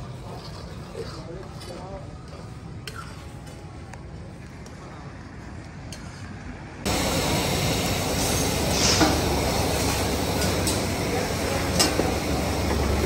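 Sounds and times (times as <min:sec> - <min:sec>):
quiet street background: 0:00.0 - 0:13.0
gas burners roaring: 0:03.9 - 0:13.0
food hissing in woks: 0:06.9 - 0:13.0.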